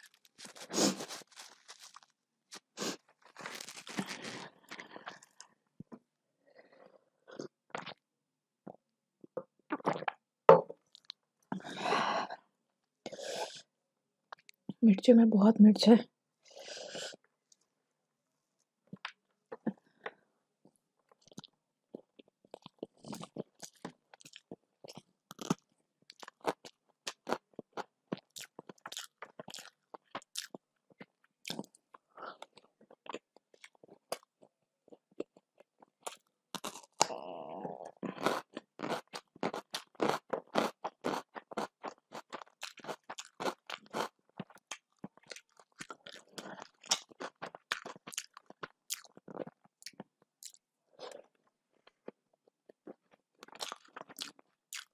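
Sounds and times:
person chewing crunchy food: 0:00.0 - 0:06.0, 0:10.8 - 0:11.7, 0:21.1 - 0:37.2, 0:37.8 - 0:54.9.

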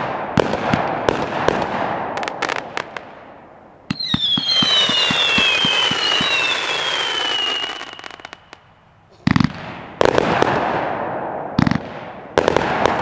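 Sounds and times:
firework crackling pops: 0:03.9 - 0:08.6
firework whistle: 0:03.9 - 0:08.6
loud firework shell bursts: 0:03.9 - 0:08.6.

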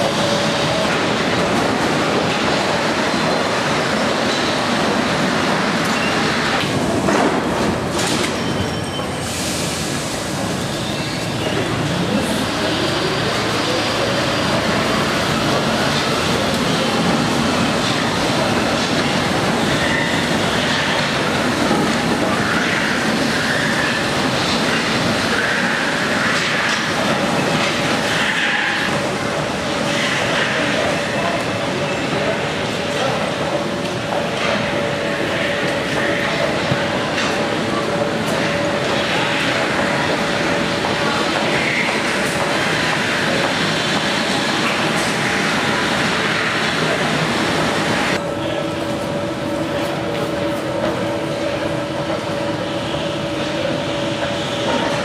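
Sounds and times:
train rumbling and braking: 0:00.0 - 0:55.0
brake squeals: 0:08.2 - 0:09.8.

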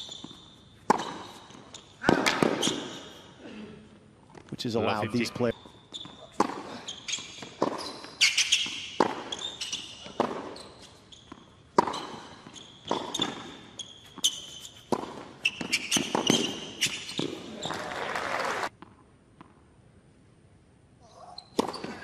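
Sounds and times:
shoes squeaking on court: 0:00.0 - 0:03.4, 0:04.3 - 0:17.9, 0:21.0 - 0:22.0
tennis ball bouncing: 0:00.1 - 0:02.9, 0:05.9 - 0:06.7, 0:07.4 - 0:17.4, 0:21.6 - 0:22.0
rackets striking tennis ball: 0:00.2 - 0:03.0, 0:06.0 - 0:10.6, 0:11.3 - 0:17.4, 0:21.6 - 0:22.0.

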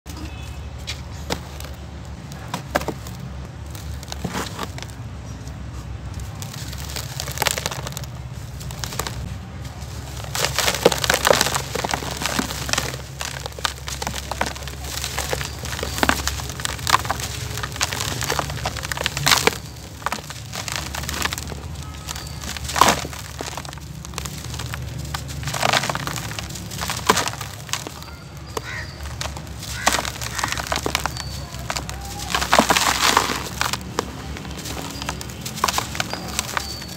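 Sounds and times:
dirt crunching in hands: 0:05.8 - 0:36.9
grit pattering into tub: 0:10.0 - 0:36.9.

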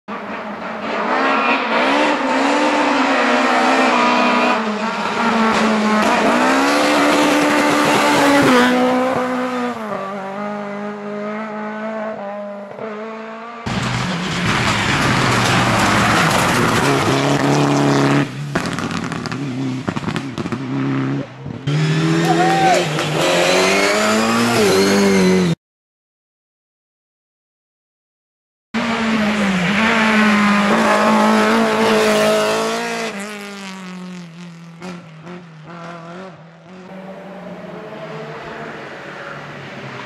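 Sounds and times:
rally car at full throttle: 0:00.1 - 0:25.6, 0:28.8 - 0:40.0
rally car engine revving: 0:00.1 - 0:25.6, 0:28.8 - 0:40.0.

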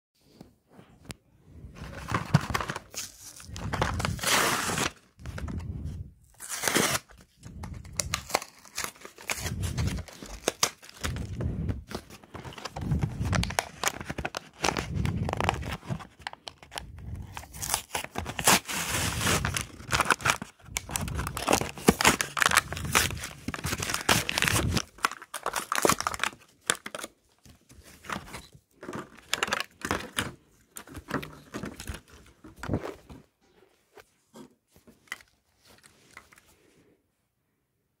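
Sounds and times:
card and paper tearing: 0:02.5 - 0:05.6, 0:06.4 - 0:15.8, 0:17.0 - 0:27.0.

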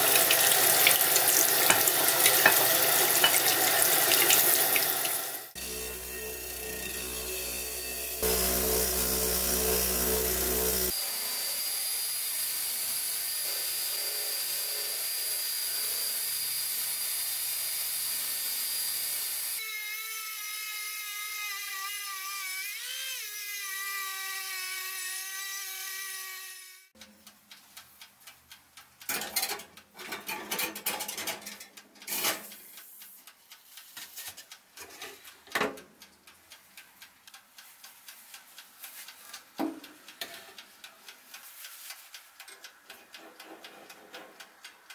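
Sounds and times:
wire wheel grinding rust off iron: 0:00.0 - 0:11.0
rotary tool wire brush whining: 0:05.5 - 0:16.4.

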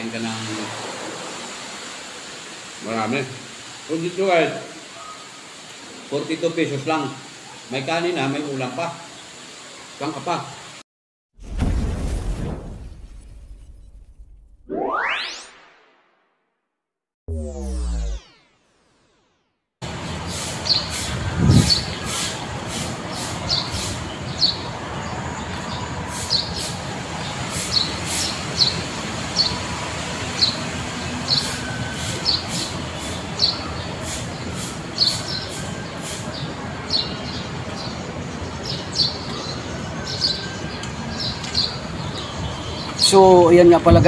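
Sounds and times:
stick broom sweeping paving: 0:20.3 - 0:24.0.

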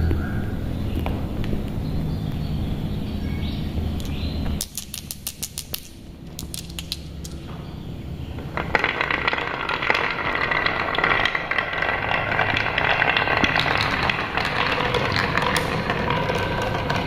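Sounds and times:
marbles clicking together: 0:04.0 - 0:07.4, 0:08.4 - 0:17.0
marbles rolling down wooden run: 0:04.6 - 0:07.4, 0:08.4 - 0:17.0.

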